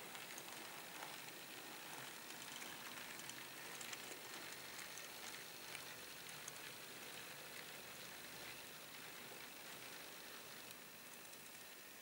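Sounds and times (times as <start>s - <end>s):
model train wheels clicking: 0.0s - 12.0s.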